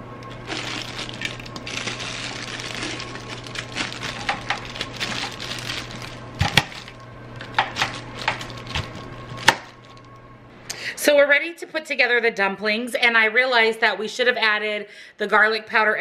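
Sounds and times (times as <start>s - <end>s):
plastic liner crinkling: 0.3s - 10.2s.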